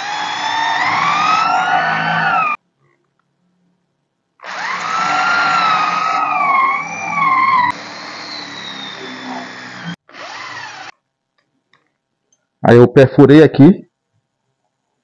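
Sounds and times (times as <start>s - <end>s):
electric drill boring into wood: 0.0s - 2.6s, 4.4s - 11.0s.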